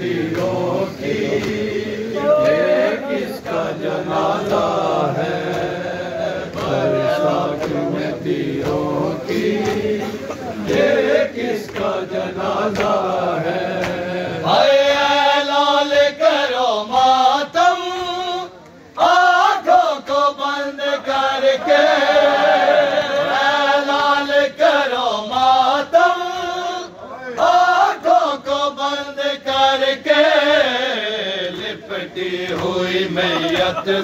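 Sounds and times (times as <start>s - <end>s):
men chanting lament: 0.0s - 34.0s
hands slapping chests: 4.4s - 4.8s, 6.4s - 7.0s, 8.6s - 8.9s, 12.6s - 14.1s, 31.5s - 34.0s.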